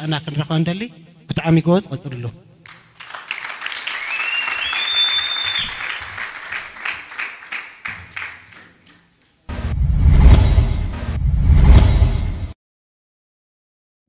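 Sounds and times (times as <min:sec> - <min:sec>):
audience applauding: 0:02.6 - 0:09.2
person whistling: 0:03.9 - 0:06.0
whoosh: 0:09.5 - 0:12.6.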